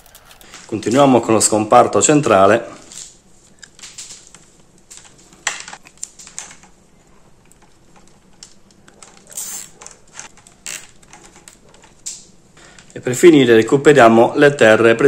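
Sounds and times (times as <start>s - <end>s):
wires rustling and clicking: 0.0s - 1.4s, 2.7s - 13.0s
cable tie zip: 9.3s - 10.0s.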